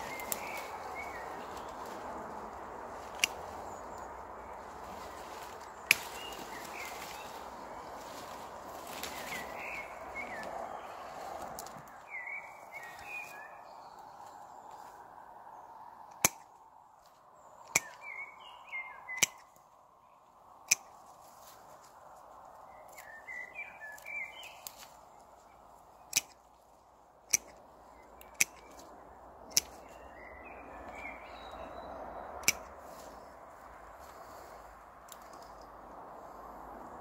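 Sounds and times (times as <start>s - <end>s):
bird chirping: 0.0s - 2.0s, 3.2s - 14.9s, 17.4s - 20.9s, 22.7s - 26.5s, 27.3s - 33.4s
pruning shears snipping stems: 0.0s - 2.0s, 3.0s - 4.1s, 5.0s - 7.4s, 8.0s - 10.5s, 16.1s - 16.5s, 17.7s - 18.1s, 19.1s - 19.6s, 20.7s - 21.1s, 26.0s - 26.6s, 27.2s - 28.9s, 29.5s - 30.0s, 32.4s - 33.2s.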